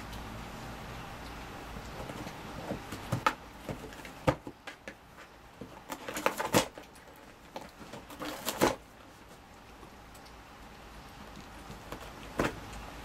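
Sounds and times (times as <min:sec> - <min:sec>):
cat clawing cardboard box: 0:01.8 - 0:09.9, 0:11.2 - 0:12.9.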